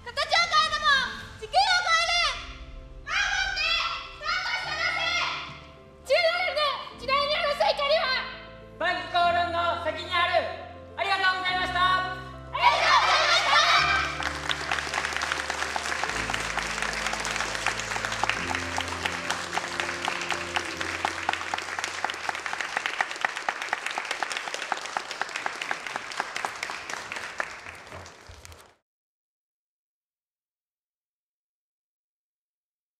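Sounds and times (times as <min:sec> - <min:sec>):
music of low held chords: 0:02.1 - 0:22.5
audience applauding: 0:12.7 - 0:28.8.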